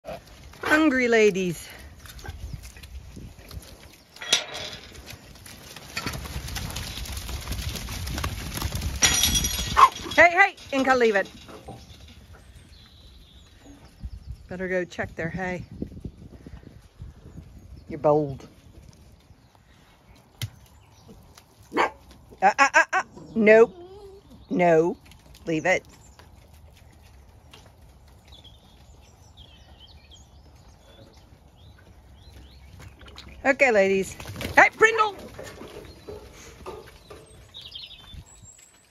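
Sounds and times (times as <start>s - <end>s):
sheep hooves trampling on mud: 0.0s - 13.6s, 18.4s - 22.8s, 24.4s - 38.9s
metal gate clanking: 4.2s - 5.0s, 9.0s - 12.3s
small birds chirping: 9.1s - 22.4s, 23.0s - 38.9s
sheep feeding at metal troughs: 25.6s - 38.9s.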